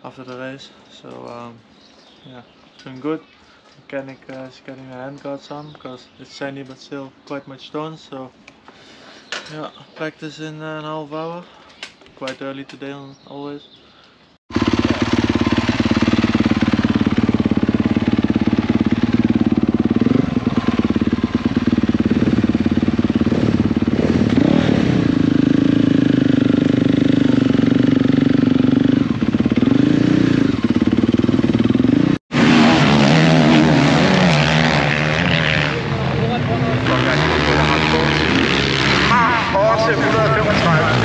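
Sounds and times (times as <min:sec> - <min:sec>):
motocross bike engine revving: 0:14.5 - 0:41.0.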